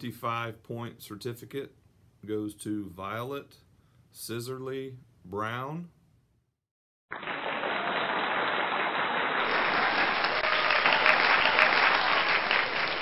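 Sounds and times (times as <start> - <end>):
crowd applause: 7.1 - 13.0.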